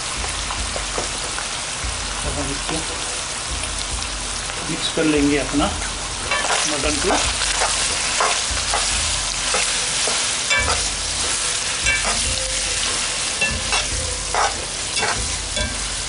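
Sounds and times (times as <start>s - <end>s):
meat sizzling in oil: 0.0s - 16.0s
spatula scraping and knocking pan: 6.3s - 16.0s.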